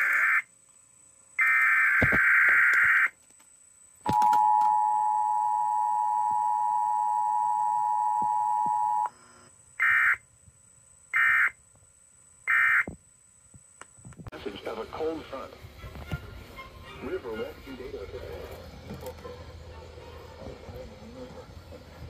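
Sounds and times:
short bursts of data tones: 0:00.0 - 0:00.5, 0:01.4 - 0:03.2, 0:09.8 - 0:10.2, 0:11.1 - 0:11.6, 0:12.4 - 0:13.0
two-tone attention signal: 0:04.1 - 0:09.1.

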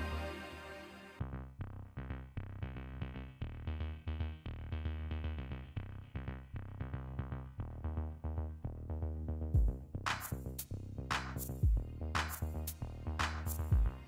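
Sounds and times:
held bass: 0:00.0 - 0:14.0
electronic music with drum-machine beat: 0:09.6 - 0:14.0.

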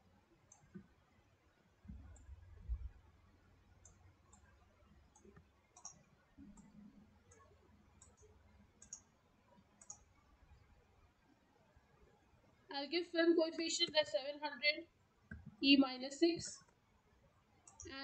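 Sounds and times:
computer mouse clicks: 0:00.5 - 0:01.0, 0:01.8 - 0:03.0, 0:03.8 - 0:10.7, 0:17.6 - 0:18.0.

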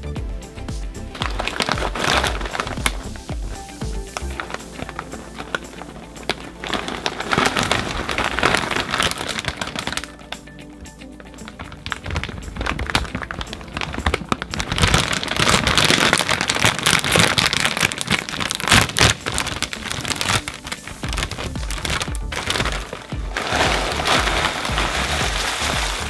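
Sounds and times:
background music with beat: 0:00.0 - 0:26.0
snack packaging crinkling: 0:01.2 - 0:10.5, 0:11.3 - 0:26.0.

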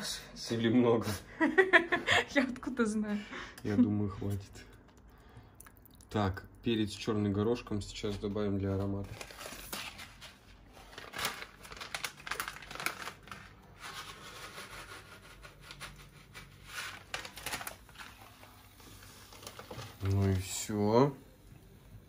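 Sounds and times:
plastic packet crinkling: 0:08.1 - 0:15.0, 0:15.6 - 0:20.8.

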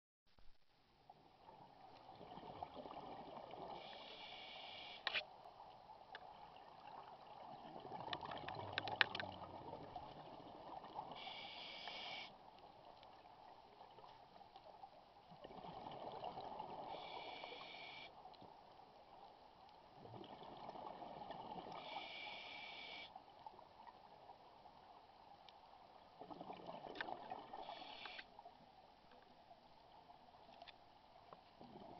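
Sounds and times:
regulator inhale hiss: 0:03.8 - 0:05.2, 0:11.2 - 0:12.4, 0:16.9 - 0:18.2, 0:21.7 - 0:23.2, 0:27.6 - 0:28.3.

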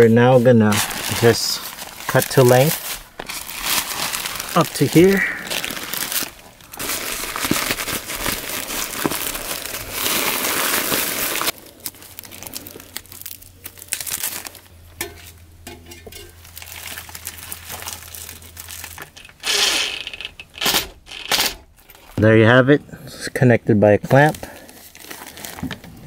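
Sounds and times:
plastic duct jacket crinkling: 0:00.0 - 0:14.8, 0:16.2 - 0:22.2, 0:24.0 - 0:26.0.

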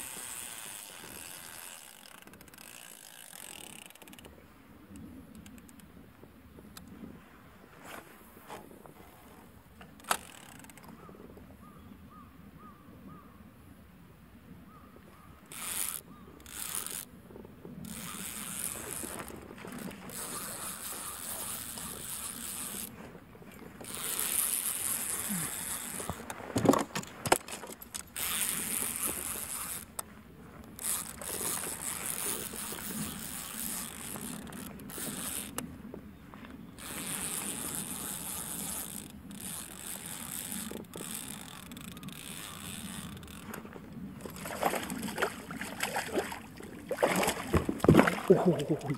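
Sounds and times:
fishing reel gears whirring: 0:00.0 - 0:04.3, 0:09.9 - 0:10.9, 0:15.4 - 0:17.1, 0:17.8 - 0:35.7, 0:36.7 - 0:46.6.

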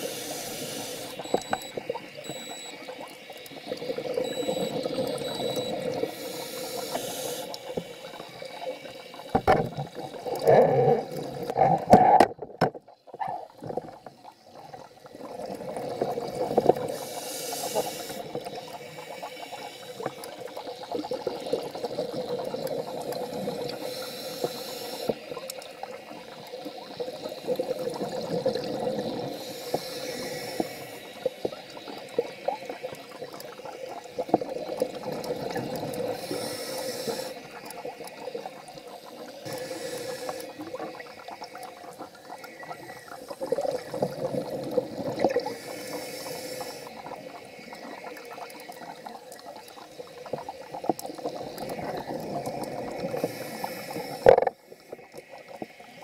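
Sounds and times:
hiss of inhaled air: 0:00.0 - 0:01.3, 0:06.1 - 0:08.1, 0:16.9 - 0:18.3, 0:23.8 - 0:25.2, 0:29.3 - 0:31.3, 0:36.1 - 0:37.4, 0:39.4 - 0:40.7, 0:45.4 - 0:47.0, 0:53.1 - 0:54.3
exhaled air bubbling: 0:00.0 - 0:56.0.

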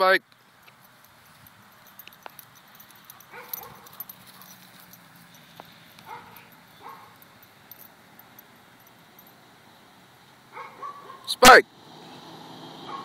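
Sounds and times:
dog moving on grass: 0:00.7 - 0:08.1.

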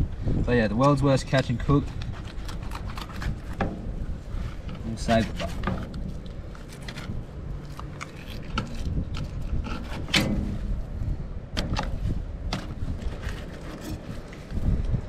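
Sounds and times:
wind on microphone: 0:00.0 - 0:15.0
knife scraping fish bones: 0:01.9 - 0:03.6, 0:04.4 - 0:10.1, 0:13.0 - 0:14.4.

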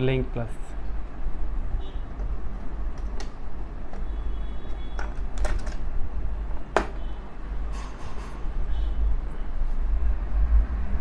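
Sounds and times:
metal locks clicking and knocking: 0:04.7 - 0:05.9.

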